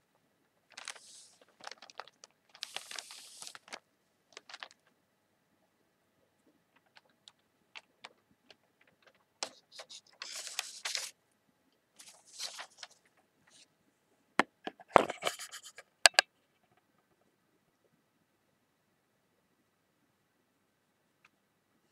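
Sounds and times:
newspaper pages rustling: 0:00.7 - 0:04.9, 0:06.8 - 0:11.2, 0:12.0 - 0:13.6.

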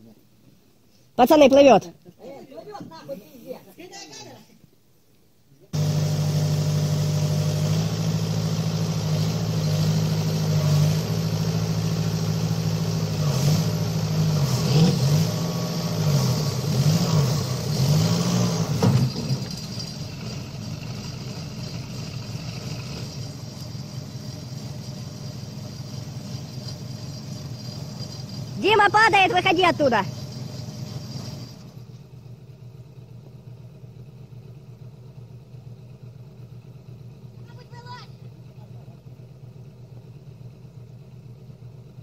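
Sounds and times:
excavator diesel engine revving: 0:05.8 - 0:37.8.

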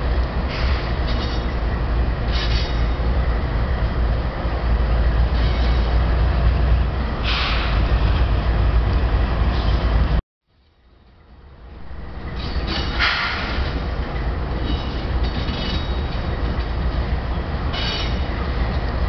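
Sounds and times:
diesel locomotives rumbling past: 0:00.0 - 0:19.0.

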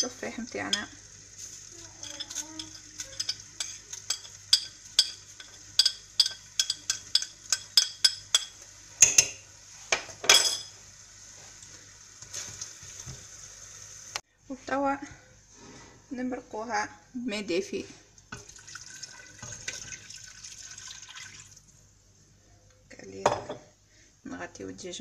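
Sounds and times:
metal spoon clinking on plate: 0:02.0 - 0:09.4.

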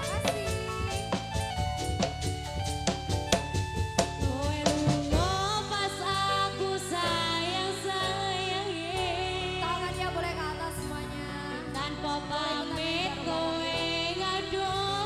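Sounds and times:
person singing: 0:00.0 - 0:01.4, 0:04.2 - 0:15.0
quick drum strokes: 0:00.0 - 0:05.7.

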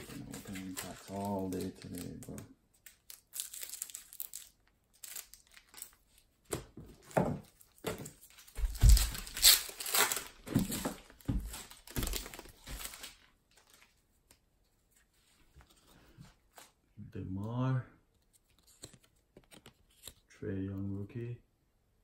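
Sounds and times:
wrapper crinkling and tearing: 0:00.0 - 0:06.2, 0:07.6 - 0:14.0.

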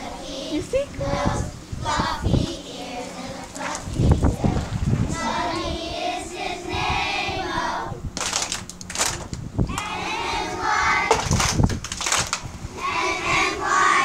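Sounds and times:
children singing: 0:01.3 - 0:08.0, 0:09.7 - 0:11.2, 0:12.8 - 0:14.0.

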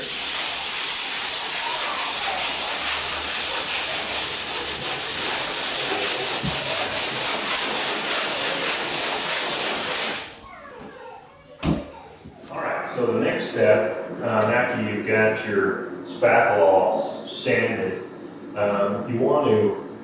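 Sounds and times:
sandpaper scratching on drywall: 0:00.0 - 0:10.3.

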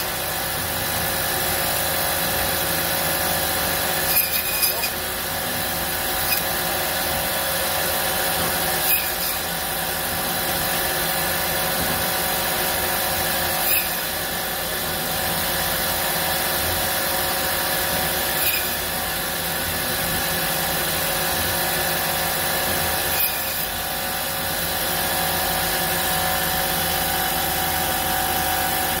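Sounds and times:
conveyor belt running: 0:00.0 - 0:29.0
bandsaw slicing meat: 0:02.5 - 0:10.8, 0:12.8 - 0:14.5, 0:17.0 - 0:20.5, 0:22.4 - 0:23.9.

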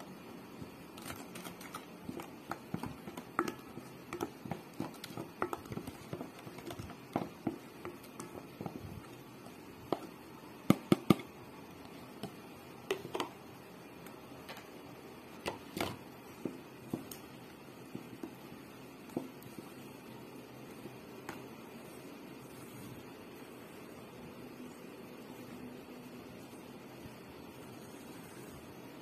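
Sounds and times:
spoon stirring dough: 0:00.0 - 0:29.0.

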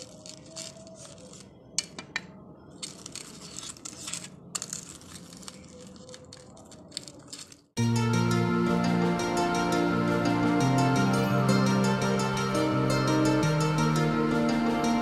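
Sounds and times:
knife crunching through crisp crust: 0:02.8 - 0:07.7.

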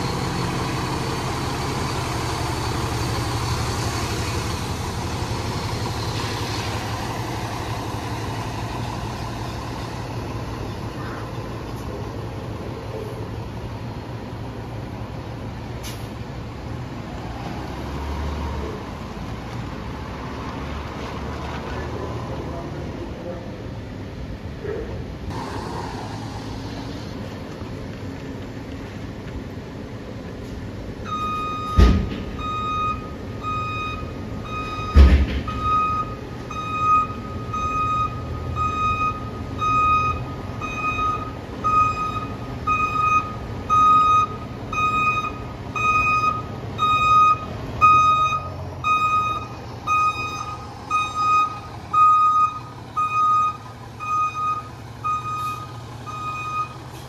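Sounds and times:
diesel engine rumble: 0:00.0 - 0:57.0
reversing alarm beeping: 0:31.0 - 0:56.9.

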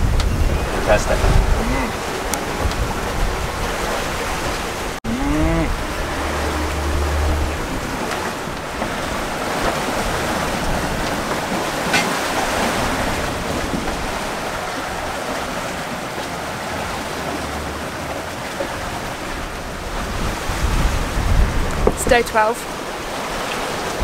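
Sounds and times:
waves washing around hull: 0:00.0 - 0:24.0
wind on microphone: 0:00.0 - 0:24.0.

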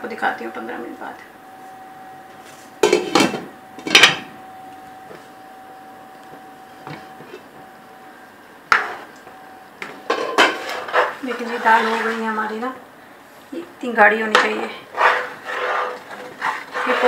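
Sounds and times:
faint steady hum: 0:00.0 - 0:17.0
wooden spoon stirring in pot: 0:09.8 - 0:12.6, 0:14.4 - 0:17.0.

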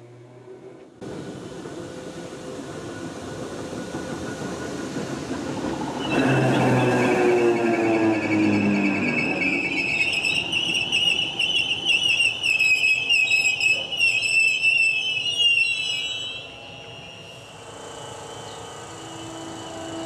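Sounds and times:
electric train pulling away: 0:00.0 - 0:20.0
high wavering squeal: 0:05.8 - 0:20.0.

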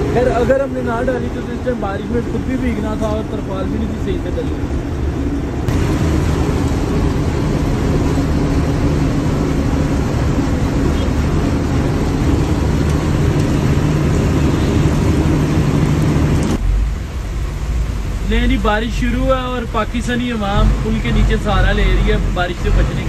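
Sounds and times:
road noise: 0:00.0 - 0:23.0
truck engine running: 0:00.0 - 0:23.0.

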